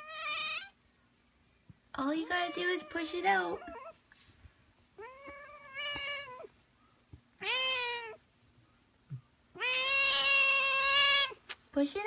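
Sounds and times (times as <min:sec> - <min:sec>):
cat meowing: 0:00.0 - 0:00.8, 0:02.2 - 0:04.0, 0:05.0 - 0:06.6, 0:07.4 - 0:08.2, 0:09.6 - 0:11.4.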